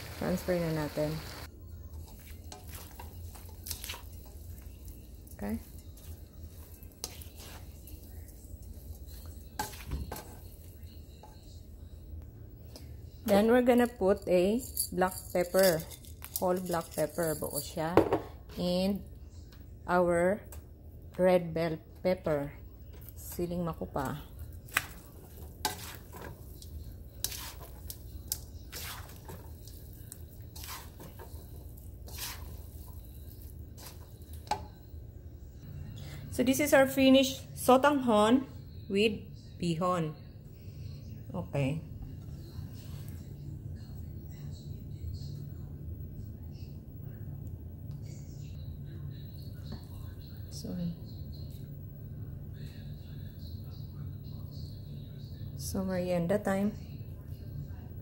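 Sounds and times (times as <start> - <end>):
spatula scraping in a wok: 0.0 - 11.5, 24.5 - 34.8
faint sizzle: 0.0 - 13.2, 22.2 - 37.7
low steady hum: 0.0 - 58.0.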